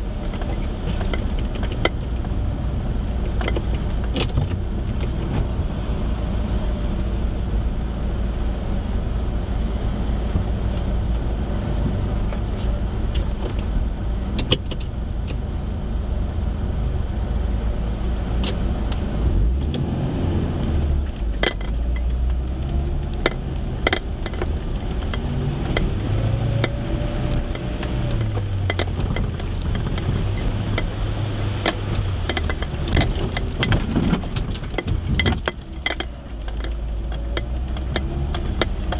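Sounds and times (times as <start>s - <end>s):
car engine idling and revving: 0.0s - 38.9s
sharp knocks and rattles: 0.2s - 5.4s, 21.1s - 38.9s.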